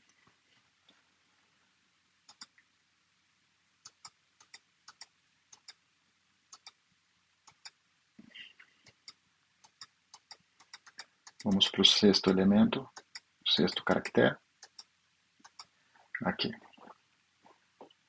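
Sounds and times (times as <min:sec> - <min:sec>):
computer mouse clicks: 0:02.3 - 0:02.6, 0:03.8 - 0:05.8, 0:06.5 - 0:06.8, 0:07.5 - 0:07.8, 0:08.9 - 0:11.6, 0:12.9 - 0:15.7.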